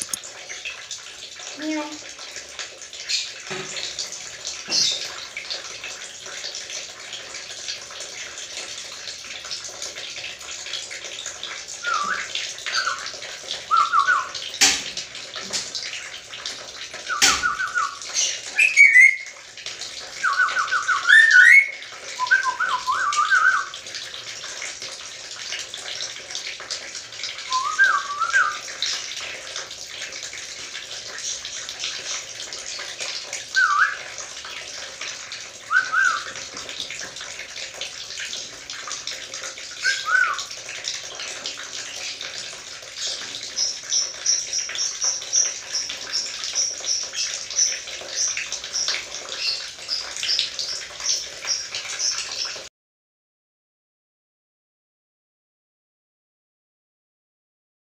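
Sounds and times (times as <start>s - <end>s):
parrot whistling: 11.8s - 13.0s, 13.7s - 14.4s, 17.1s - 18.0s, 18.6s - 19.3s, 20.2s - 23.7s, 27.5s - 28.6s, 33.6s - 34.0s, 35.7s - 36.3s, 39.8s - 40.4s.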